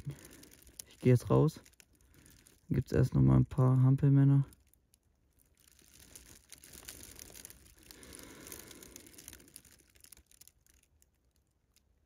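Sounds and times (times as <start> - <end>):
jacket rustling on leaves: 5.6 - 10.5.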